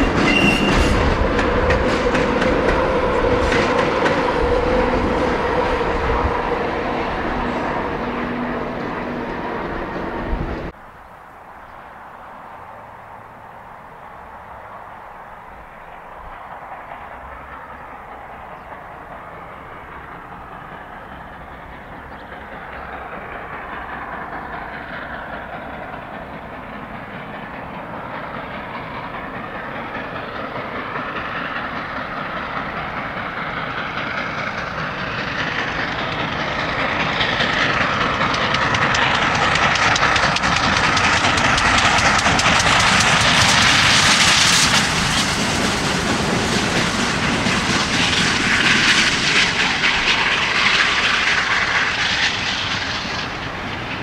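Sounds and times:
steam locomotive working hard: 0.0s - 10.8s, 12.0s - 54.0s.

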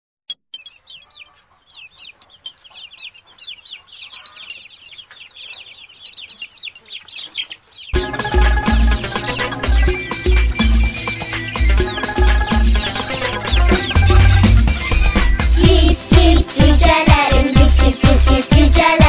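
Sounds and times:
small birds chirping: 0.3s - 19.0s
music: 8.0s - 19.0s.

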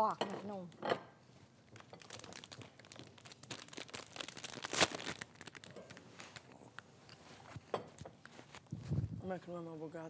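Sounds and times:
food packet crinkling: 1.6s - 6.9s
sharp crackle: 1.7s - 6.6s.

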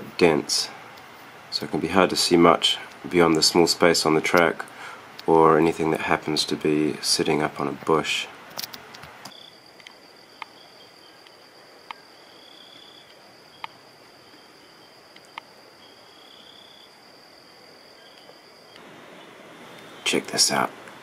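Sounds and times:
high-pitched insect trill: 9.3s - 18.8s
shorter insect trills: 9.3s - 20.7s.

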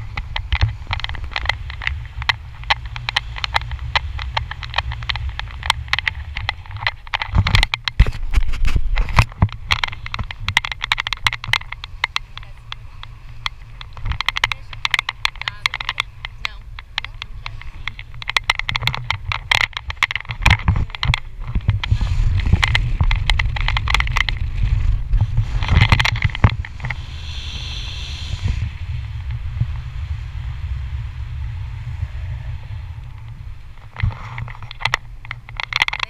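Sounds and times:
crackles and knocks: 0.0s - 36.0s
wind buffeting microphone: 0.0s - 36.0s.

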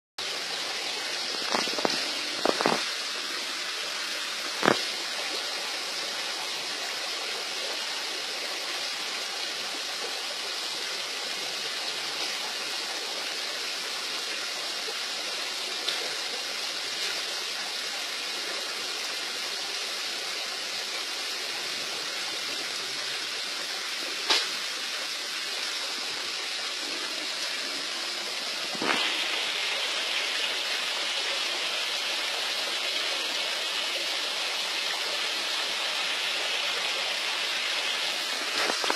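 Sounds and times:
flowing water rushing: 0.2s - 38.9s.

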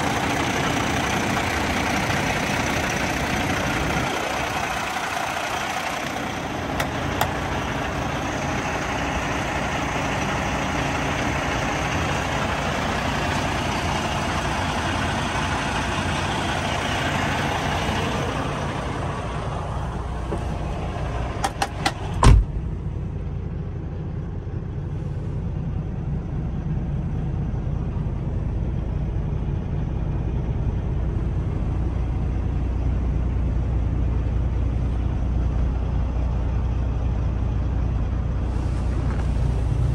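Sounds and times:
diesel engine idling: 0.0s - 39.9s
truck cab door shutting: 21.4s - 22.6s.

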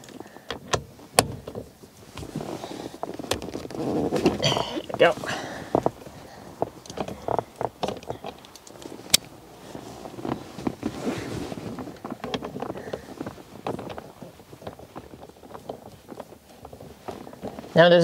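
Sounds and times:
clicks and knocks on steering wheel: 0.0s - 2.4s, 3.0s - 17.7s.

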